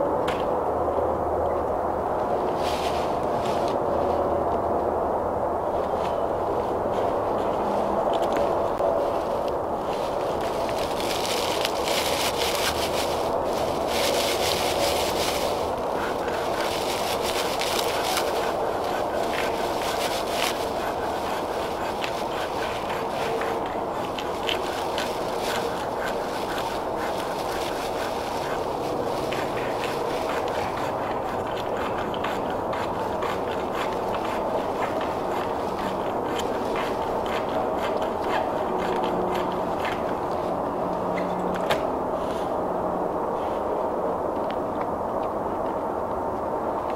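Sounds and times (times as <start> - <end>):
scraping and rubbing by hand: 2.3 - 4.4, 5.7 - 40.7
dry tinder crackling and rustling: 5.8 - 40.6.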